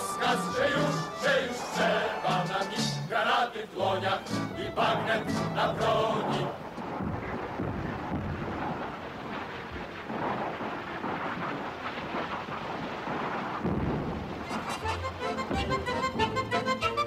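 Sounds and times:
accordion music: 0.0 - 3.1, 4.0 - 6.1, 14.5 - 17.0
fire roaring and crackling: 4.9 - 16.0.

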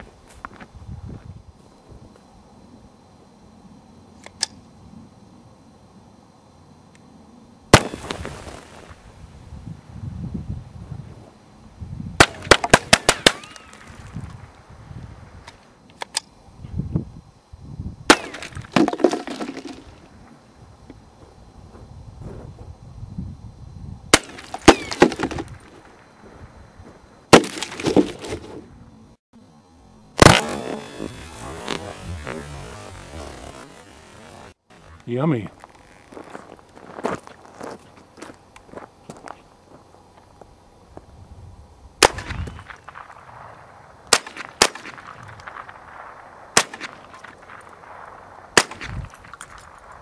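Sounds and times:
bullets striking dirt and targets: 7.7 - 8.6, 12.2 - 13.9, 18.1 - 19.9, 24.1 - 25.7, 27.3 - 28.5, 30.2 - 30.9, 42.0 - 43.3, 44.1 - 45.8, 46.6 - 47.8, 48.6 - 50.0
rifle shots cracking: 7.7 - 8.8, 12.2 - 13.9, 30.2 - 31.7, 44.1 - 48.9.

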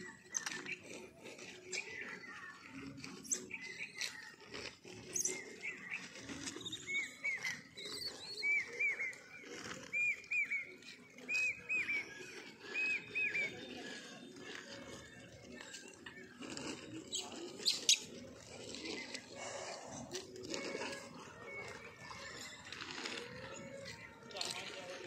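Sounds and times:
monkey chirping calls: 16.9 - 19.2.

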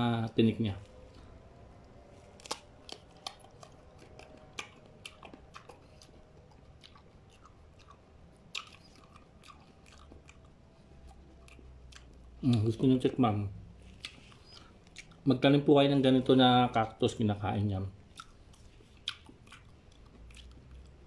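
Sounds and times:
crunchy chewing: 0.8 - 12.9, 13.7 - 15.4, 18.0 - 21.0.

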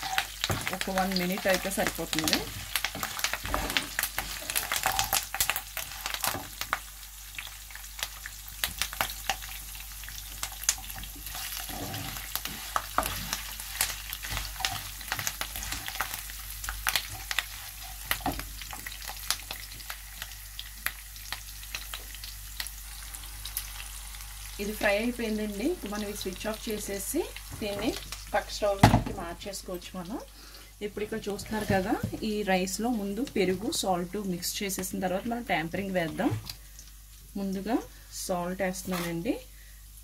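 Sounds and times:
spices sizzling in hot oil: 0.0 - 40.0
wooden spatula scraping pan: 2.6 - 5.0, 11.1 - 16.0.

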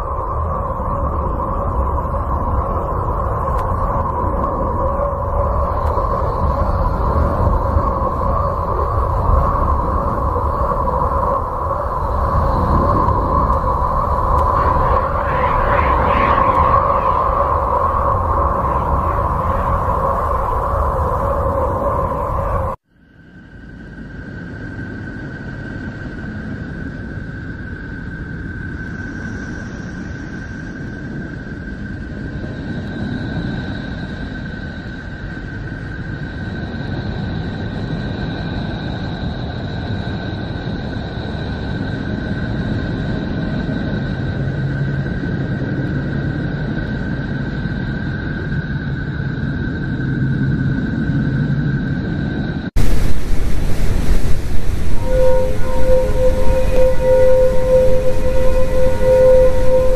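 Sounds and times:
low rushing noise: 0.0 - 22.8, 51.2 - 59.9
rumbling drone with humming tones: 0.0 - 59.9
faint higher tone: 52.8 - 59.9
held high tone: 52.8 - 59.9.

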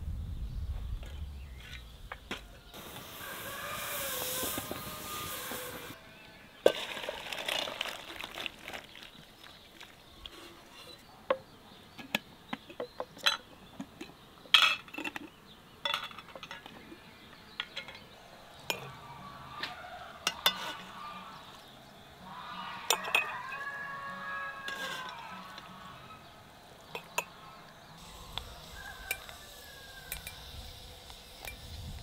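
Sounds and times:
wet rustle in strainer: 6.7 - 10.7
glass jars clinking on wood: 12.1 - 16.8, 22.9 - 23.6.

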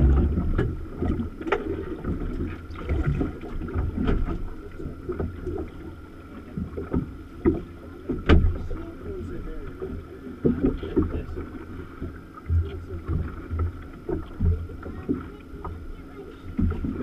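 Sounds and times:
wind buffeting microphone: 0.0 - 1.3
faint steady hum: 0.0 - 17.0
low rumble of water and hull: 0.0 - 17.0.

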